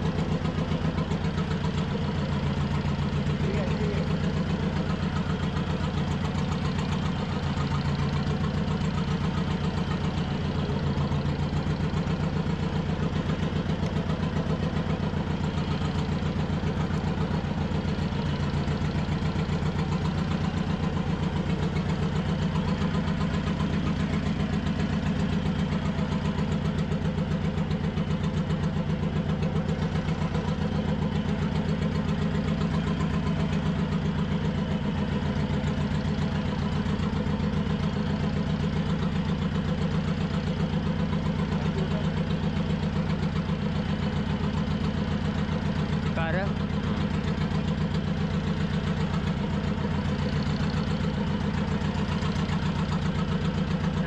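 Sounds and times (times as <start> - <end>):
boat engine idling: 0.0 - 54.0.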